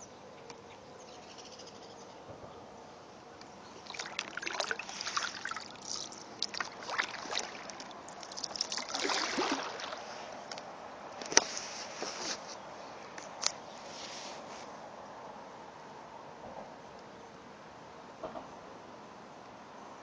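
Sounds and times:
water splashing off paddle: 3.8s - 10.4s.

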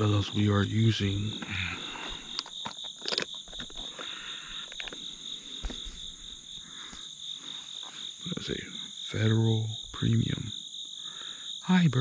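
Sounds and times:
high insect hum: 0.0s - 12.0s
insects buzzing: 0.0s - 12.0s
handling clicks and knocks: 2.2s - 5.0s.

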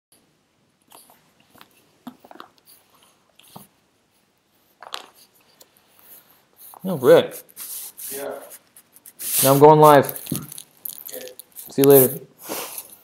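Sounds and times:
handling clicks and rustles: 9.0s - 12.1s.

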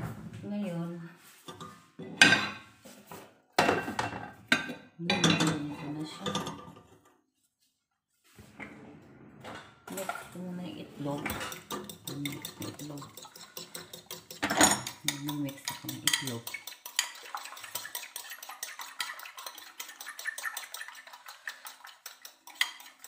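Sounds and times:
utensil beating egg in bowl: 9.9s - 23.0s.

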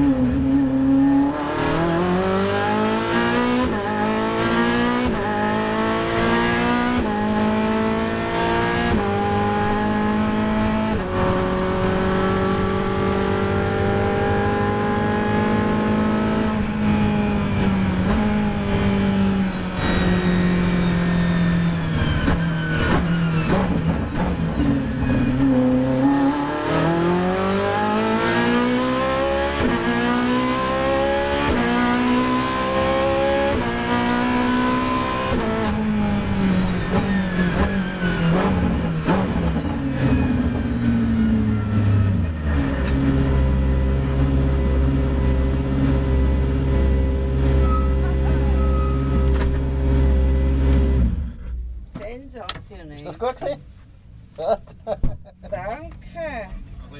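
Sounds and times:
car engine from inside cabin: 0.0s - 56.9s.

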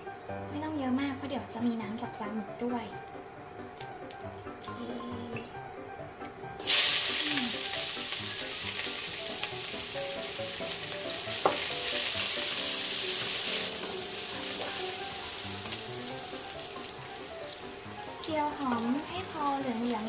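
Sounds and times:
quiet background music: 0.0s - 20.0s
shallots sizzling in hot oil: 6.6s - 20.0s.

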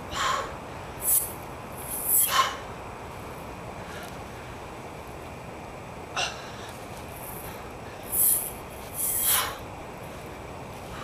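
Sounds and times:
steady background hiss: 0.0s - 11.0s
sharp hissing exhales: 8.1s - 9.6s.

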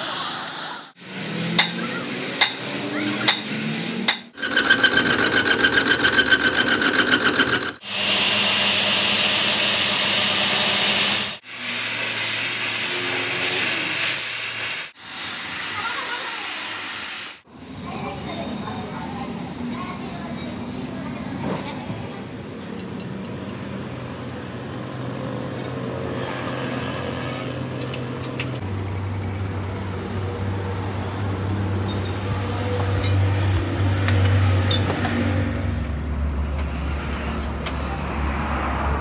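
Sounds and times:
gas torch hissing: 0.0s - 4.0s, 7.8s - 17.5s
angle grinder grinding steel: 1.0s - 14.6s
sharp metal strikes: 1.5s - 4.4s.

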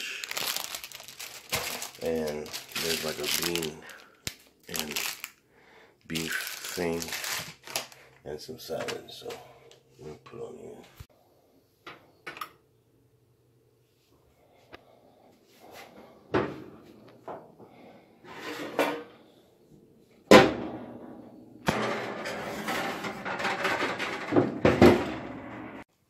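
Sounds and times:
baking sheet scraping and rattling: 18.2s - 19.1s, 21.7s - 25.8s.

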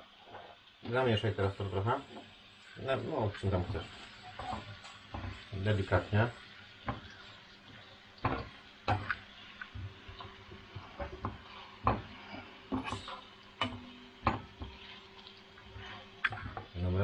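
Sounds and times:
onion and garlic frying: 0.0s - 17.0s.

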